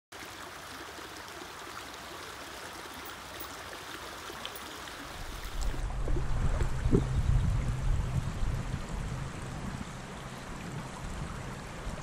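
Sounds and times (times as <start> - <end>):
stream babbling over pebbles: 0.1 - 12.0
low rumble: 5.5 - 12.0.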